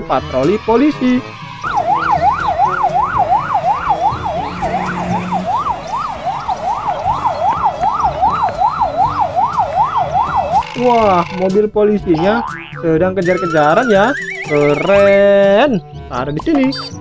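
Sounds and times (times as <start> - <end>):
low road rumble: 1.2 - 15.2
police siren yelping: 1.6 - 11.4, 13.2 - 15.2.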